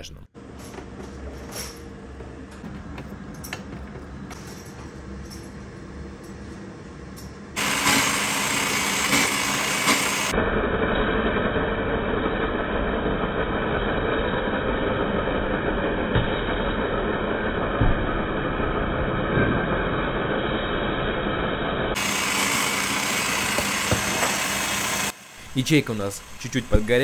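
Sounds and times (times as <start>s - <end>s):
drill press drilling: 7.6s - 10.4s, 22.0s - 27.0s.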